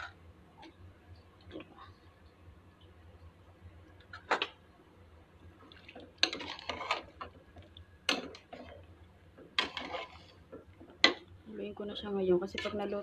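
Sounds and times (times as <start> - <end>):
low steady hum: 0.0 - 13.0
metal ladle scraping pot: 6.2 - 7.3, 9.6 - 10.4.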